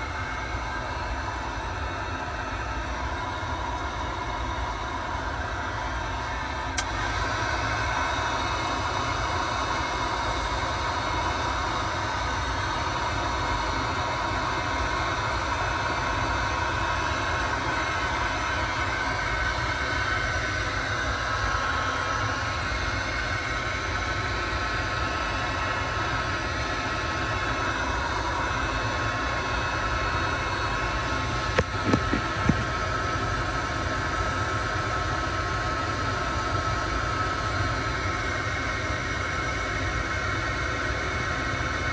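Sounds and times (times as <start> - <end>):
motor humming and whirring: 0.0 - 41.9.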